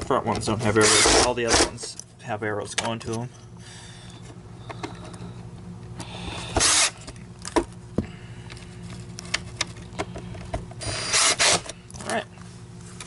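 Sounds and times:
power screwdriver motor whine: 6.6 - 7.0, 10.8 - 11.6.

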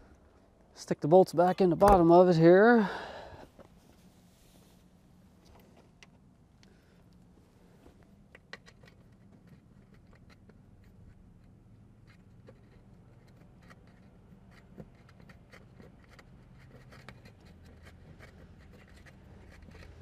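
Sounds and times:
low steady hum: 0.0 - 20.0
small metal clicks and scrapes: 8.0 - 20.0.

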